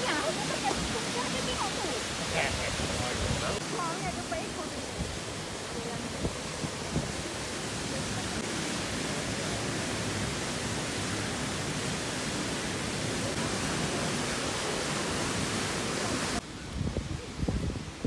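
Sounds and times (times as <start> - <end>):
stream pouring over weir: 0.0 - 18.0.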